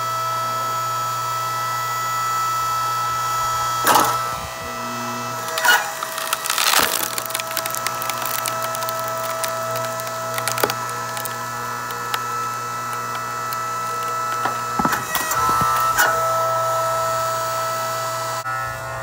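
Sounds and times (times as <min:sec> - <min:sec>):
log splitter motor humming: 0:00.1 - 0:19.0
wood crackling and splintering: 0:05.3 - 0:16.4
wooden knocks: 0:14.3 - 0:15.9.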